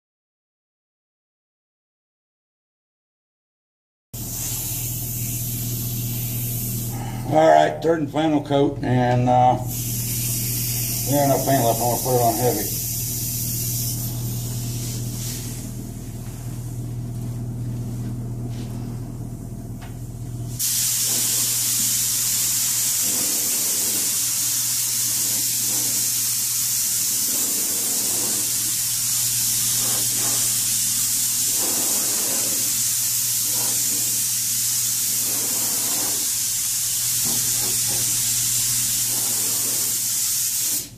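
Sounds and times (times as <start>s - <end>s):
paint spray gun hissing: 4.2s - 7.2s, 9.6s - 16.8s, 20.5s - 40.9s
steady low hum: 4.2s - 40.0s.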